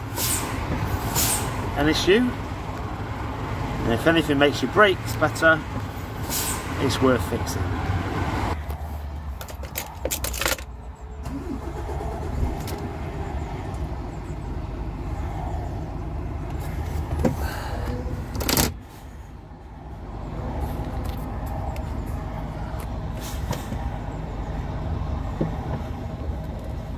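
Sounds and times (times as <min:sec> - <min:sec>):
diesel engine running: 0:09.7 - 0:26.9.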